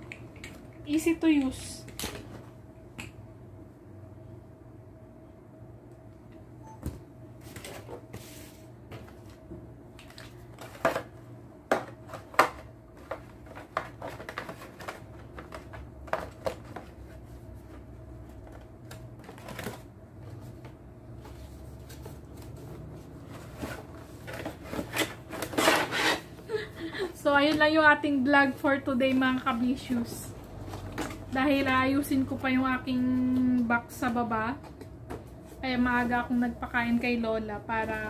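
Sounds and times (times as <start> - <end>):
cardboard rustling: 12.0 - 26.4.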